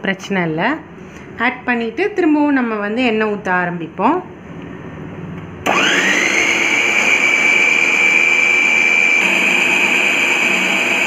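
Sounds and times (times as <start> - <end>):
food processor motor whining: 5.6 - 11.0.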